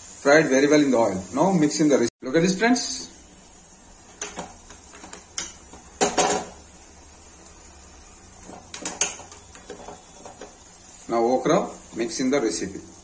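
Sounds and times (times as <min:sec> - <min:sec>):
spoon and pans clattering: 0:04.1 - 0:06.6, 0:08.4 - 0:10.6.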